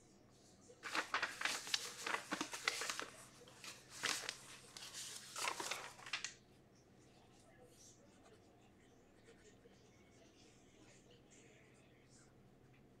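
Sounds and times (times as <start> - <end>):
packaging crinkling: 0.8 - 6.3.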